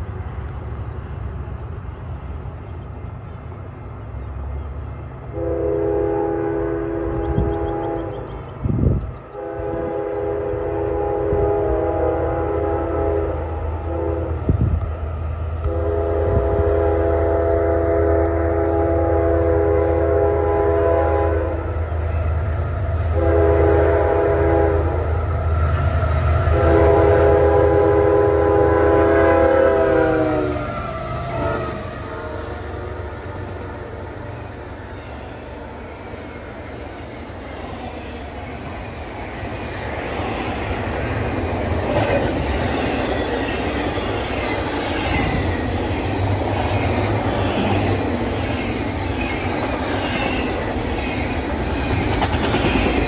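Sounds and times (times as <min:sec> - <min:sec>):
train rumbling: 0:00.0 - 0:53.0
train horn blasts: 0:05.3 - 0:08.3, 0:09.3 - 0:14.5, 0:15.6 - 0:21.8, 0:23.0 - 0:33.0.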